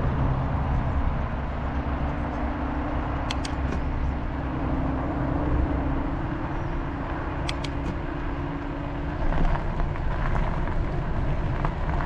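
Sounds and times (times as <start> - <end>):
bicycle tyre and road hum: 0.0 - 12.0
wind rumble on microphone: 0.0 - 12.0
high chirps or clicks: 3.3 - 3.9, 7.5 - 8.0.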